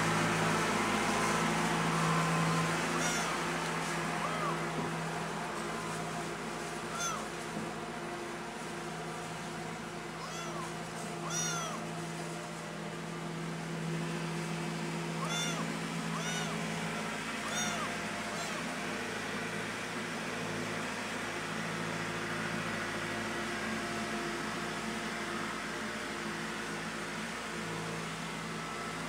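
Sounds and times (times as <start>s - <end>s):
kitten meowing: 2.9s - 3.4s, 4.2s - 4.7s, 6.9s - 7.3s, 10.2s - 11.9s, 15.2s - 18.8s.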